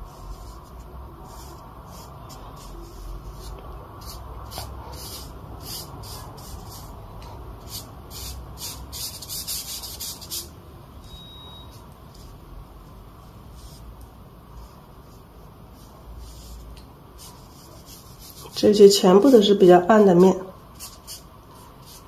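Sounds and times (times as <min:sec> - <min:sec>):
brush scratching on paper: 0:00.0 - 0:07.0, 0:07.6 - 0:10.5, 0:14.6 - 0:22.0.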